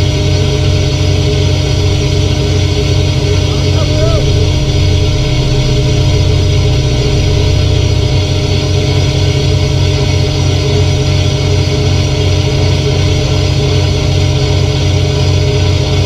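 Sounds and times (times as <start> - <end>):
boat engine pulsing drone: 0.0 - 16.0
constant machinery hum: 0.0 - 16.0.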